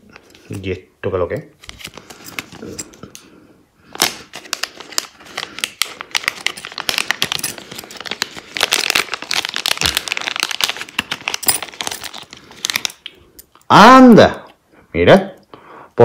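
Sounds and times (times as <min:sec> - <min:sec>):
plastic bag crinkling: 0:03.9 - 0:13.2.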